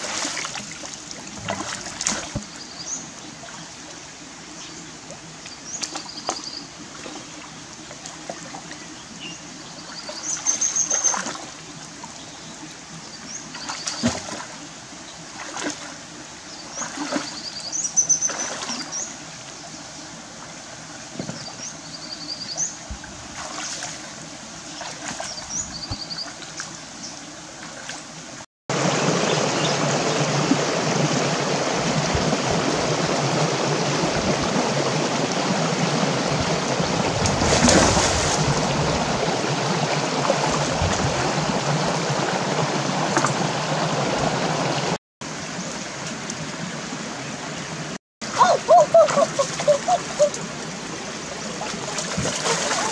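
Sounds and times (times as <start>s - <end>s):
hands splashing in stream: 0.0s - 2.6s, 13.6s - 14.6s, 28.8s - 43.7s, 51.6s - 52.9s
wading splashes: 0.0s - 3.9s, 13.4s - 14.7s, 15.3s - 19.2s, 22.8s - 45.0s, 48.2s - 52.9s
flowing stream water: 0.0s - 52.9s.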